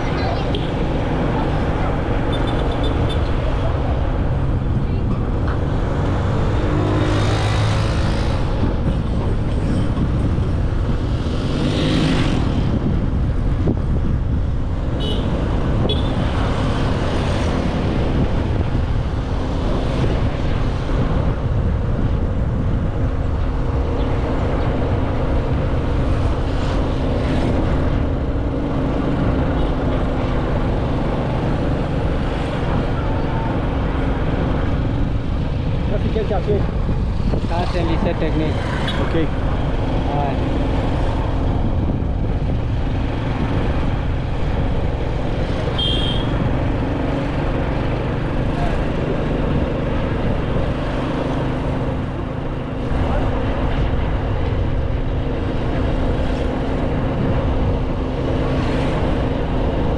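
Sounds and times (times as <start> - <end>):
wind rumble on microphone: 0.0 - 59.9.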